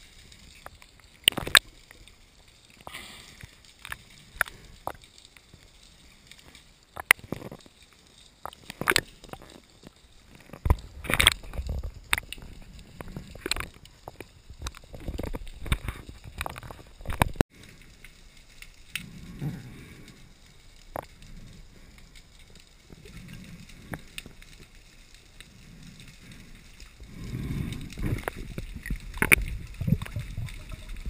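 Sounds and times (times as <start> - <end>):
muffled water rushing: 8.6 - 31.0
underwater clicks and knocks: 10.4 - 17.4, 27.9 - 31.0.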